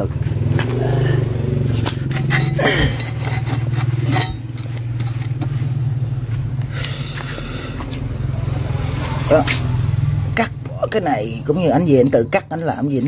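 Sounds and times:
low motor hum: 0:00.0 - 0:13.0
metal clinks and knocks: 0:01.7 - 0:06.0.

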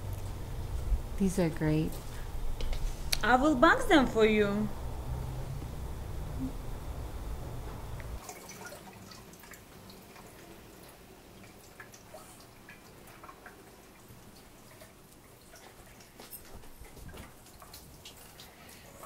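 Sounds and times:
low room rumble: 0:00.0 - 0:08.2
small splashes and clicks: 0:08.2 - 0:19.0.

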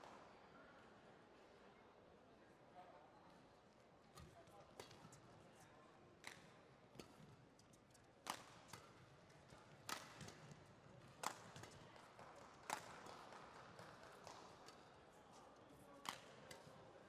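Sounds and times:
badminton rackets hitting shuttlecock: 0:08.2 - 0:11.8.

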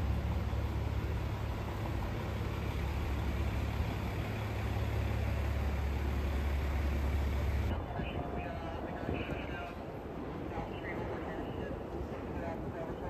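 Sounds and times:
traffic engines rumbling: 0:00.0 - 0:11.3
street noise hiss: 0:00.0 - 0:13.0.

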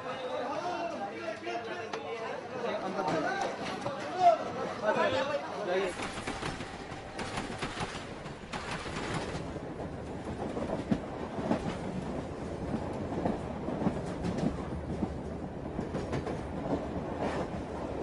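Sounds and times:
train rumble: 0:05.9 - 0:18.0.

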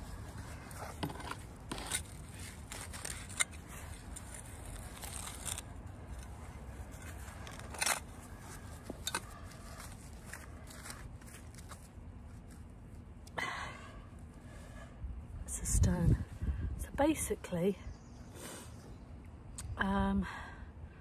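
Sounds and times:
hand tool scraping in soil: 0:00.0 - 0:12.7.

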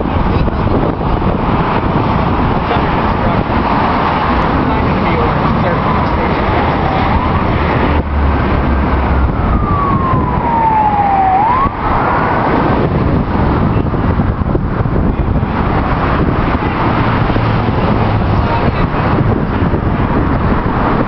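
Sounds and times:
road traffic: 0:00.0 - 0:21.0
emergency siren wailing: 0:04.3 - 0:13.9.

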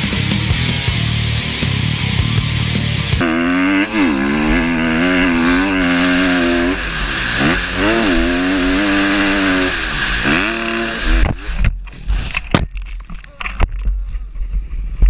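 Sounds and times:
motocross bike engine revving: 0:01.0 - 0:12.5.

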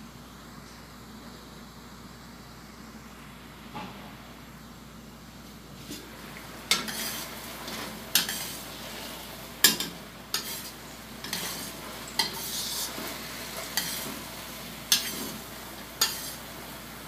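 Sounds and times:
sauce sizzling: 0:06.0 - 0:17.0
metal spatula scraping a wok: 0:06.7 - 0:08.7, 0:09.6 - 0:14.2, 0:14.9 - 0:16.5.

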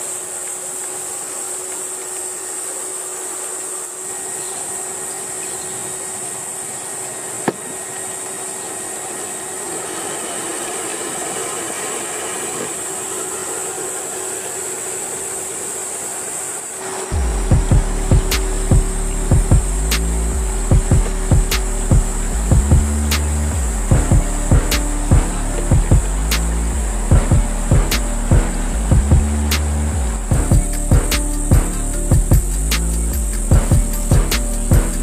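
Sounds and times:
high hiss: 0:00.0 - 0:35.0
small electric motor whining: 0:00.0 - 0:35.0.

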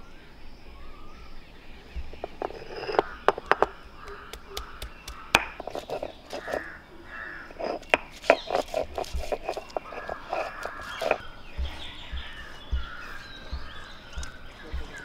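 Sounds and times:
stone roller grinding on slab: 0:02.0 - 0:03.8, 0:05.3 - 0:15.0
crows cawing: 0:02.8 - 0:08.0, 0:09.7 - 0:15.0.

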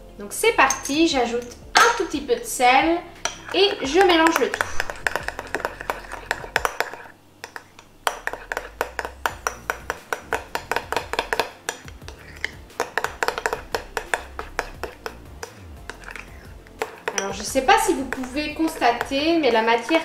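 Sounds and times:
spoon stirring slime: 0:00.5 - 0:20.0
spoon clinking against glass: 0:00.6 - 0:02.2, 0:03.2 - 0:20.0.

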